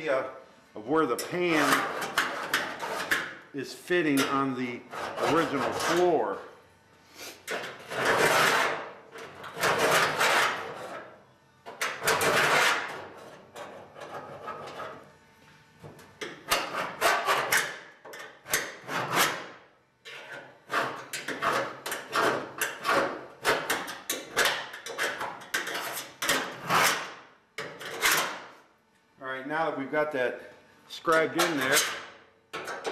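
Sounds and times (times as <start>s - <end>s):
scribe scratching sheet steel: 1.3s - 6.3s, 7.2s - 11.1s, 11.7s - 15.0s, 16.2s - 28.4s, 31.1s - 32.9s.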